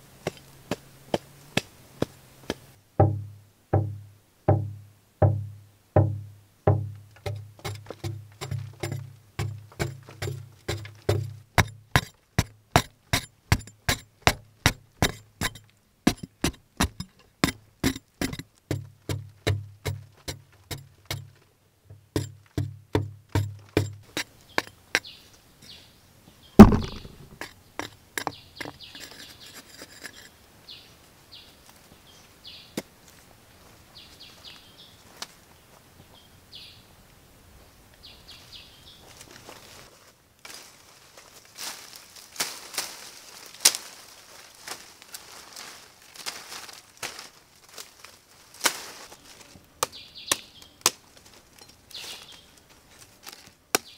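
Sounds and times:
digging tool striking earth: 6.7 - 25.1, 26.6 - 30.2.

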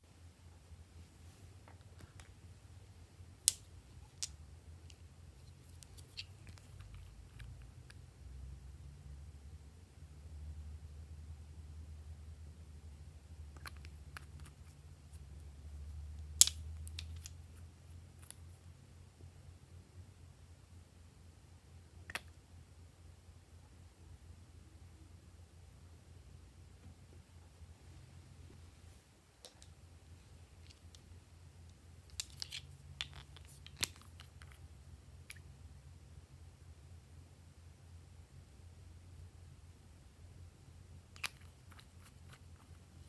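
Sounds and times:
faint low hum: 0.0 - 43.0
bottle cap clicking and scraping: 32.1 - 34.6, 41.2 - 42.8.

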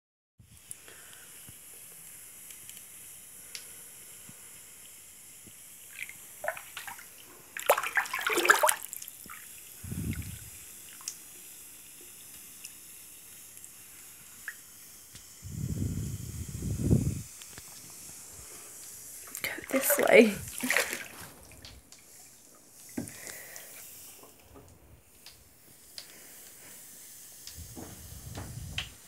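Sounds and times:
bath bomb fizzing: 0.5 - 29.0
bathwater splashing and sloshing: 5.9 - 11.4, 19.2 - 24.8.

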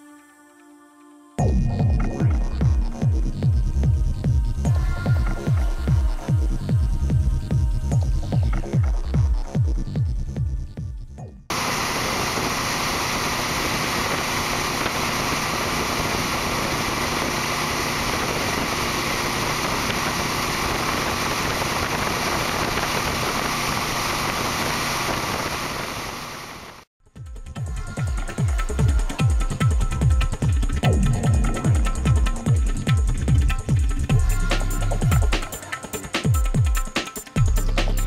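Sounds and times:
road noise: 11.5 - 26.8
wind rushing over microphone: 11.5 - 26.8
motorcycle engine: 11.5 - 26.9.

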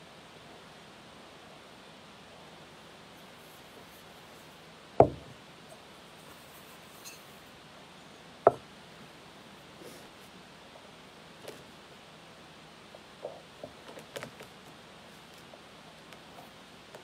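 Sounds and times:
objects set down on table: 5.0 - 5.3.

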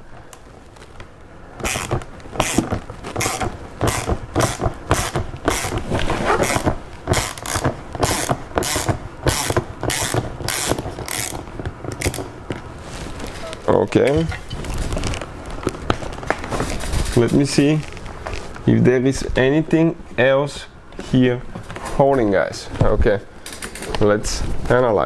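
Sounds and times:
ratchet driver pawl clicking: 1.6 - 2.6, 3.2 - 5.8, 6.4 - 12.3.

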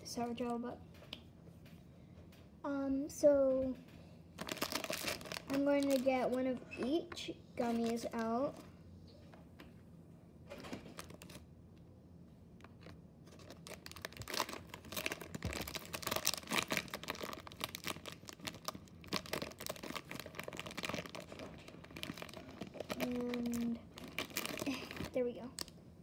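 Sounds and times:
plastic candy packaging crinkling: 4.3 - 8.7, 10.5 - 11.5, 12.6 - 25.8.

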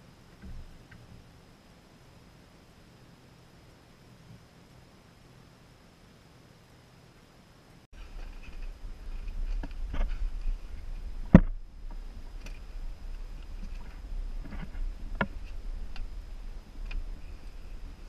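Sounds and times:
wind rumbling on microphone: 8.0 - 18.0.

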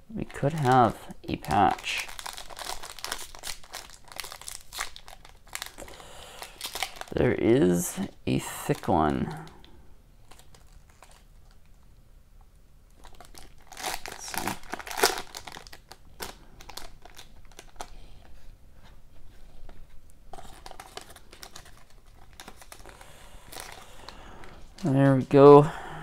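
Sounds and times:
foil wrapper crinkling: 0.2 - 7.5, 8.6 - 11.7, 12.9 - 18.0, 20.3 - 25.4.

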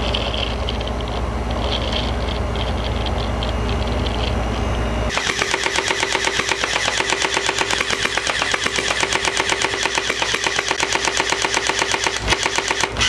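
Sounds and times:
electric gearbox whining: 0.0 - 13.0
rapid rattle of shots: 5.1 - 13.0.

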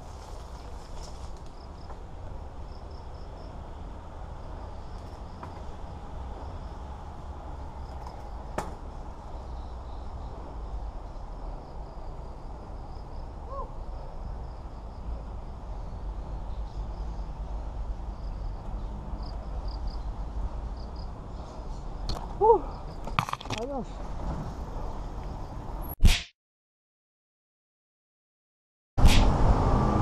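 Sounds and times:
insects chirping: 0.4 - 23.8.

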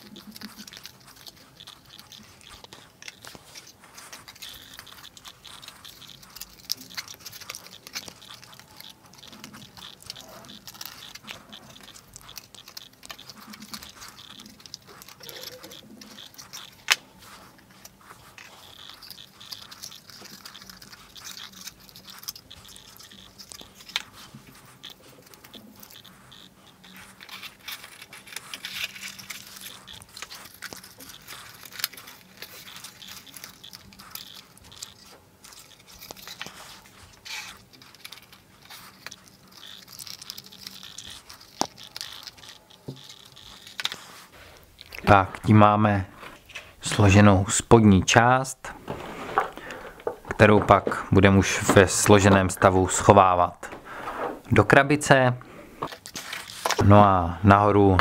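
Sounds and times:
cardboard scraping and rustling: 48.7 - 52.6, 55.8 - 56.8.

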